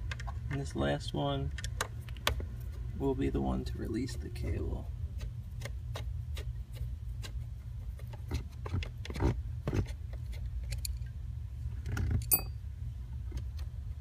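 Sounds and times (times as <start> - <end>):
steady low hum: 0.0 - 14.0
ringing metal clink: 12.2 - 12.6.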